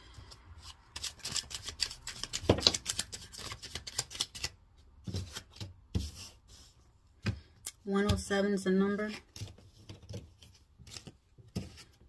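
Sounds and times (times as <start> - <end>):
playing cards shuffling: 0.0 - 6.4, 9.1 - 12.0.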